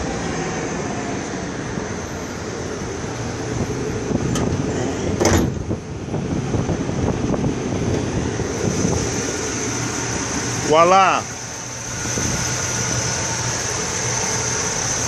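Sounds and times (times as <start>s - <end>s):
car engine idling: 0.0s - 15.0s
hood clunking open: 3.5s - 5.9s.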